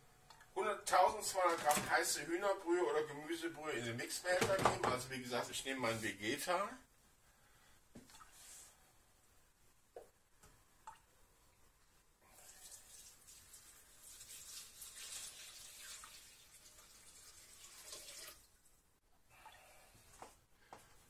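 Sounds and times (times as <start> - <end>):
broth pouring into bowl: 12.3 - 18.5.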